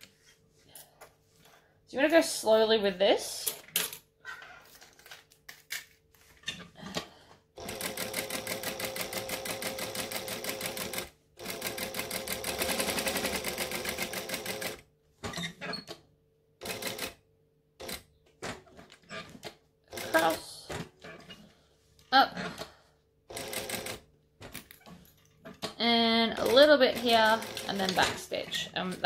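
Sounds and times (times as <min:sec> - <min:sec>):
sewing machine stitching: 0:07.6 - 0:14.8, 0:16.6 - 0:17.2, 0:19.0 - 0:20.4, 0:23.3 - 0:29.0.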